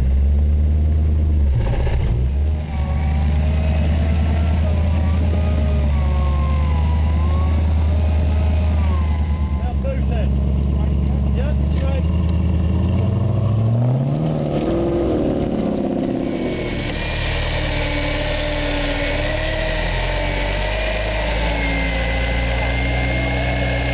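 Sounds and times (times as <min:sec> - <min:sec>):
off-road engine revving: 0:00.0 - 0:23.9
wavering whine: 0:01.3 - 0:23.9.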